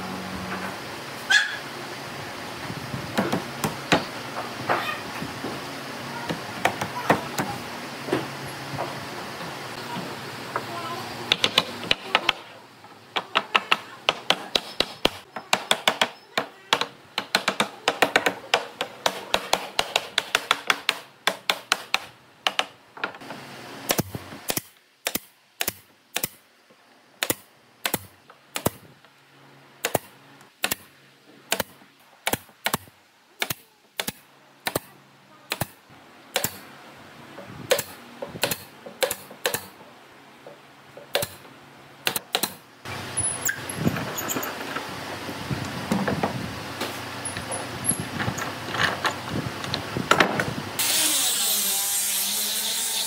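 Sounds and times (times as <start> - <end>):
nail gun firing into wood: 36.4 - 36.6, 37.7 - 39.7, 41.1 - 41.4.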